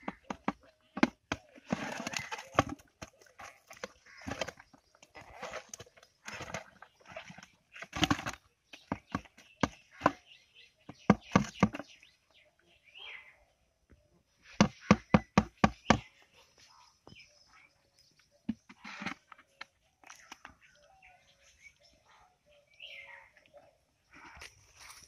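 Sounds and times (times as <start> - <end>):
fish thrashing in plastic bucket: 0.0 - 12.0.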